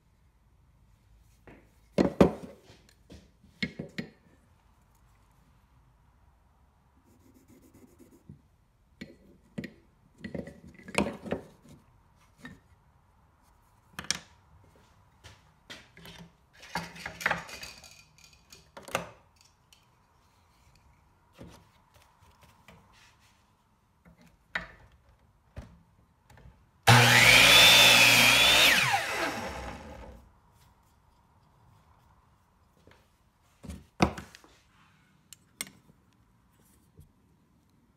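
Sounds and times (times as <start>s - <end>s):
knocks and rustles of tools: 1.4s - 4.3s, 9.0s - 12.8s, 15.2s - 23.4s
miter saw cutting wood: 26.9s - 30.2s.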